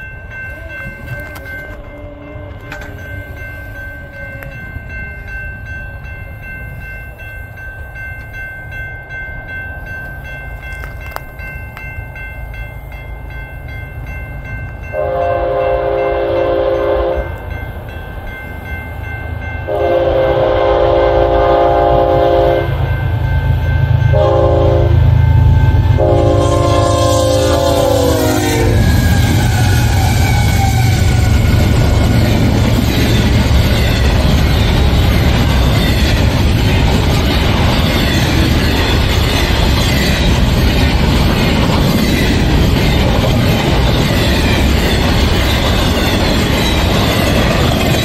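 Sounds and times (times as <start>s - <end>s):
crossing bell ringing: 0.0s - 48.0s
train horn blasts: 14.9s - 17.4s, 19.7s - 22.9s, 24.0s - 31.8s
diesel locomotive rumble: 19.0s - 48.0s.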